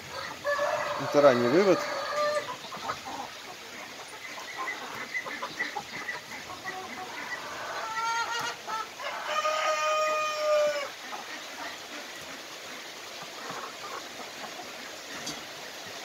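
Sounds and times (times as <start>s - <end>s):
chickens clucking: 0.0s - 16.0s
cockerel crowing: 0.1s - 2.6s, 7.1s - 11.0s.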